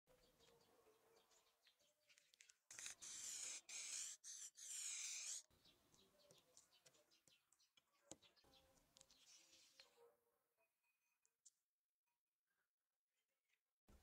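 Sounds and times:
spray paint can hissing: 2.7s - 5.4s.

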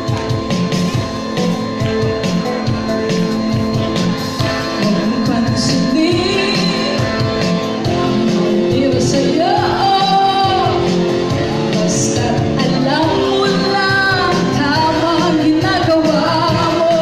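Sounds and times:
loud backing music with beat: 0.0s - 17.0s
woman singing into microphone: 4.4s - 17.0s.

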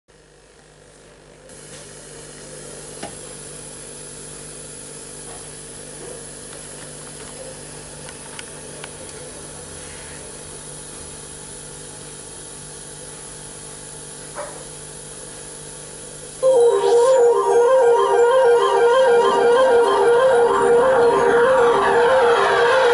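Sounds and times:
music: 16.4s - 22.9s.

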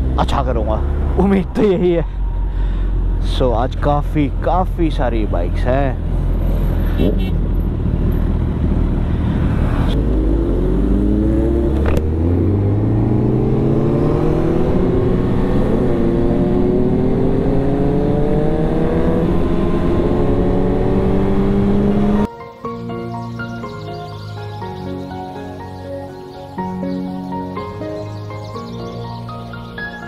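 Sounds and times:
motorcycle engine accelerating: 6.2s - 22.3s.

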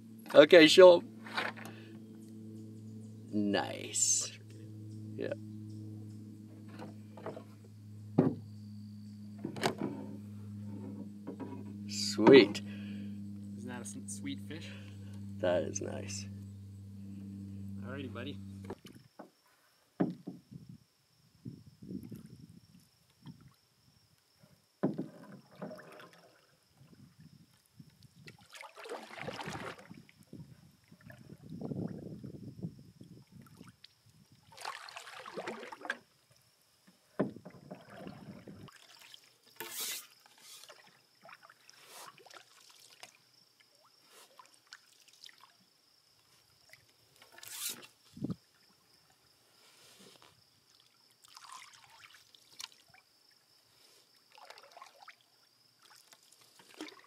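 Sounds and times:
canoe paddle strokes in water: 0.3s - 2.0s, 3.5s - 8.5s, 9.2s - 19.4s, 24.9s - 26.9s, 28.2s - 30.1s, 33.4s - 36.1s, 36.9s - 43.1s, 55.8s - 57.0s
sharp knocks: 8.1s - 8.4s
water splashing and dripping: 34.5s - 36.0s.

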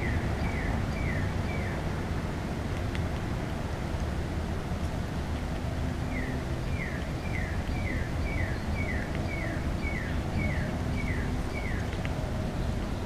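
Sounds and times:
songbird whistling: 0.0s - 1.8s, 6.1s - 11.9s.

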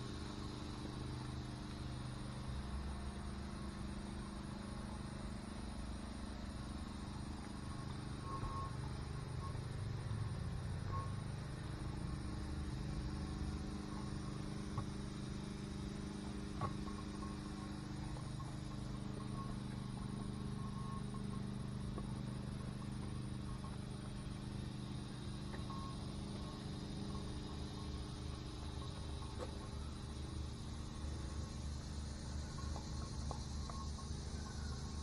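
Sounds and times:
constant low hum: 0.0s - 35.0s
crickets chirping: 0.0s - 35.0s.

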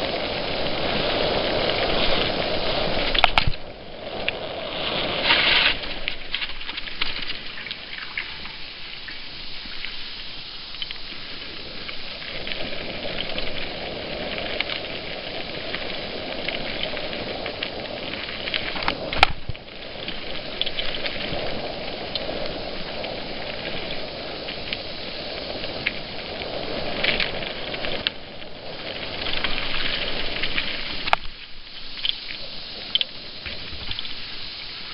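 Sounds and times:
grit crackling under tyres: 0.0s - 34.9s
wind on microphone: 11.0s - 34.9s.

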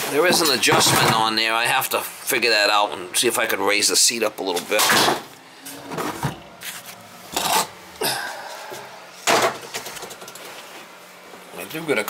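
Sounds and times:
rubbing and scraping handling noises: 5.7s - 7.8s.

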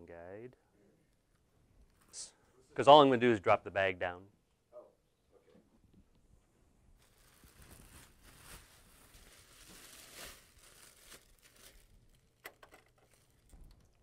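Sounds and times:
plastic bag crinkling: 7.0s - 14.0s.

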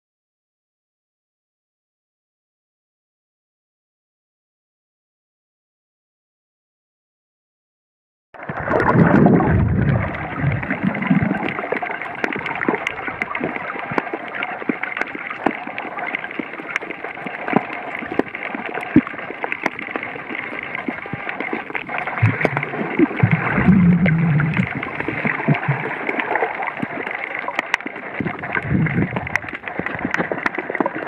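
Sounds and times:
muffled low gurgling: 8.4s - 31.0s.

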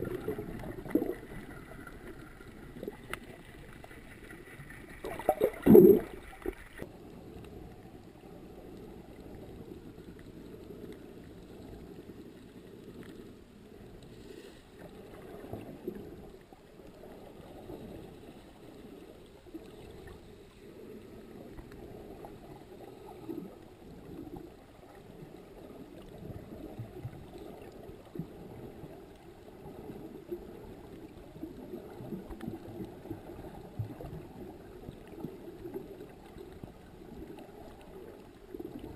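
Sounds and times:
muffled underwater rush: 0.0s - 38.9s.

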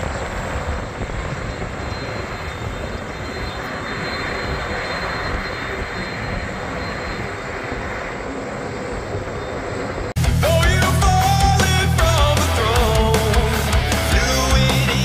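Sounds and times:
jet engines at taxi power: 0.0s - 15.0s
loud rock music: 10.2s - 15.0s.

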